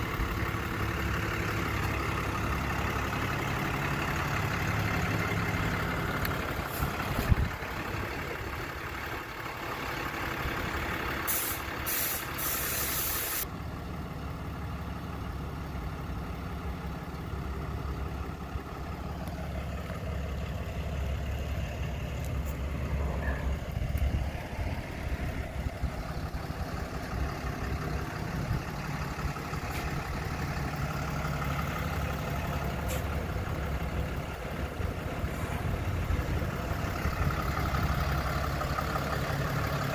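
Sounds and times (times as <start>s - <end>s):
truck engine idling: 0.0s - 39.9s
short hiss: 11.3s - 13.4s.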